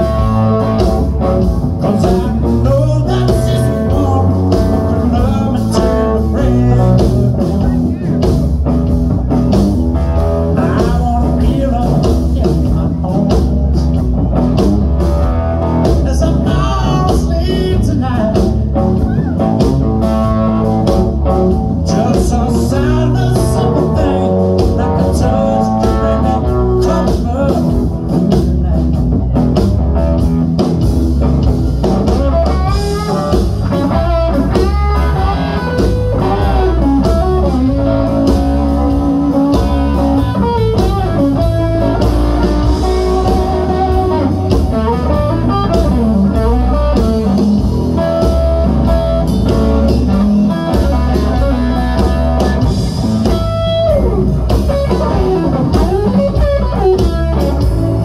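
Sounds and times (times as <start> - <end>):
bass guitar: 0.0 - 58.0
clean electric guitar lead: 0.0 - 58.0
drums: 0.0 - 58.0.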